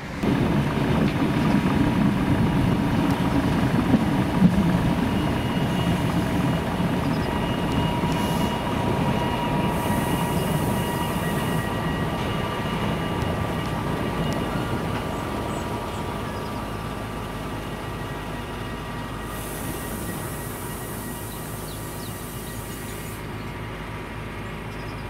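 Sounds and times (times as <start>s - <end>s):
train rumbling: 0.0s - 25.0s
faint high whines: 4.9s - 23.4s.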